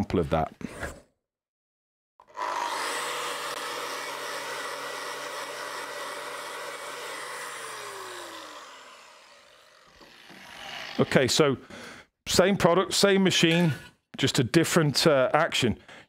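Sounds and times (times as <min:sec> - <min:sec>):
angle grinder grinding steel: 0:02.2 - 0:11.4
grinder motor winding down: 0:02.2 - 0:11.4.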